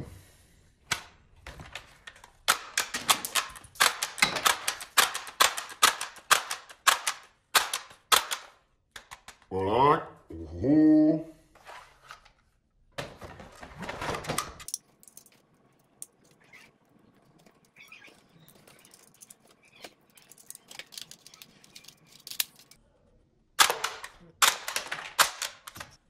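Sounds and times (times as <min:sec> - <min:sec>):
toy pistol rustling and rattling: 0:14.6 - 0:22.8.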